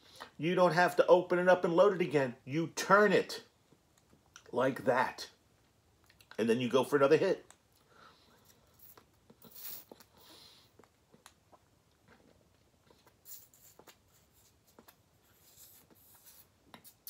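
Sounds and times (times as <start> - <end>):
faint breaths on vape pen: 7.8 - 10.8.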